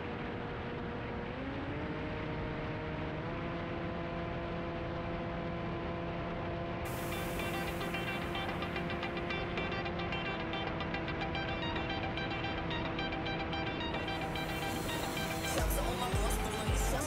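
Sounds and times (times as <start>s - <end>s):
electric motor propeller whine: 6.9s - 9.8s, 13.9s - 17.0s
electronic music with a beat: 6.9s - 17.0s.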